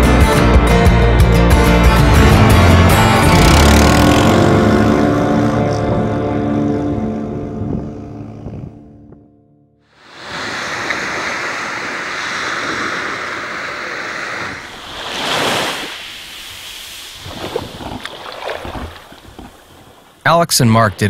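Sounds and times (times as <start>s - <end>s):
surf washing onto beach: 10.0s - 21.0s
wave breaking: 10.0s - 21.0s.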